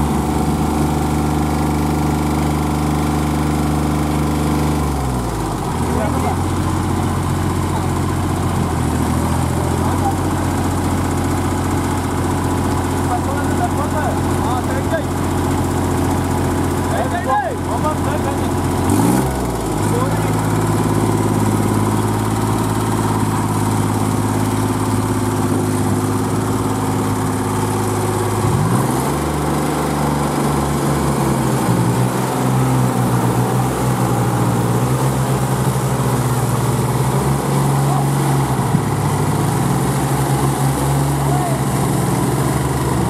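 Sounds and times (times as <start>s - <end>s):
tractor diesel engines under load: 0.0s - 43.0s.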